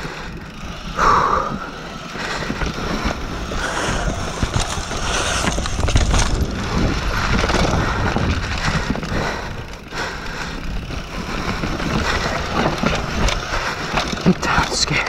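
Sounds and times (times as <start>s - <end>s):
bike rattling over bumps: 0.0s - 15.0s
wind rumble on microphone: 0.0s - 15.0s
tyres crunching over dirt: 1.9s - 9.1s, 10.9s - 15.0s.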